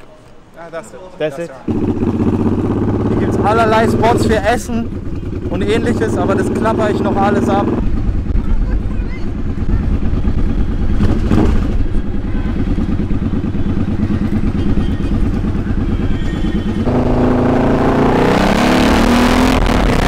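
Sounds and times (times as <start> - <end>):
motorcycle engine running: 1.7 - 20.0.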